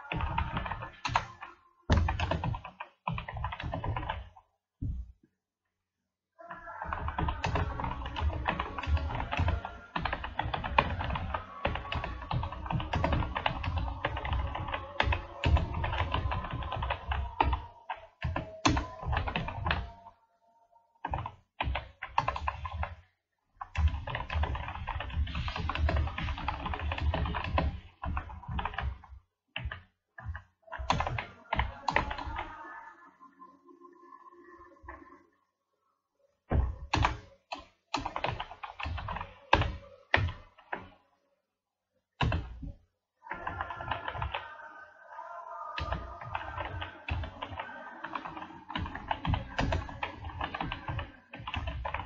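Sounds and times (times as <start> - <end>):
fast typing on keyboard: 0.0 - 4.4, 6.6 - 19.9, 21.1 - 23.0, 23.6 - 32.6, 36.6 - 40.9, 42.2 - 44.6, 45.7 - 52.0.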